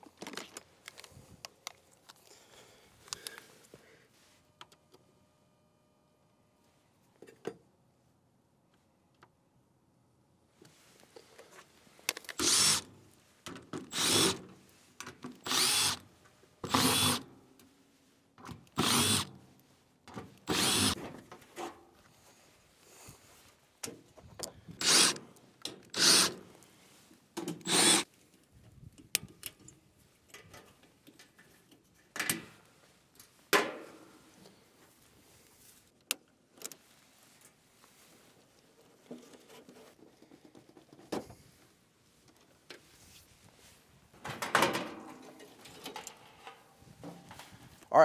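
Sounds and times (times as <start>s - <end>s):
cordless drill spinning: 12.3s - 12.9s, 13.9s - 14.5s, 15.4s - 16.0s, 16.6s - 17.2s, 18.7s - 19.3s, 20.4s - 21.0s, 24.7s - 25.2s, 25.9s - 26.4s, 27.6s - 28.1s.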